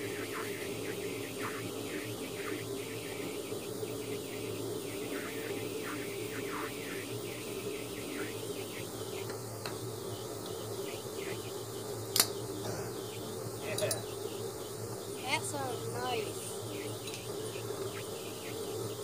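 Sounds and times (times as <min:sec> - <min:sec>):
steady hum and hiss: 0:00.0 - 0:19.0
light clicks: 0:12.1 - 0:12.4.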